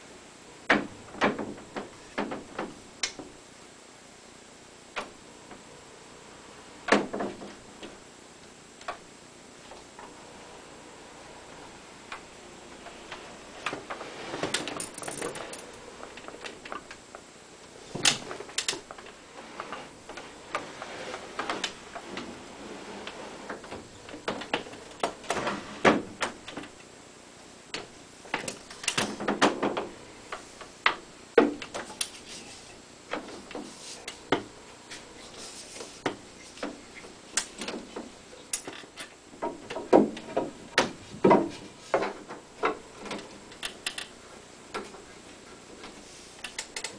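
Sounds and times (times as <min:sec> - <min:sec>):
wood sliding scrapes: 0:09.8 - 0:16.9, 0:17.7 - 0:26.5, 0:32.0 - 0:38.2
wooden knocks and clicks: 0:37.4 - 0:44.1.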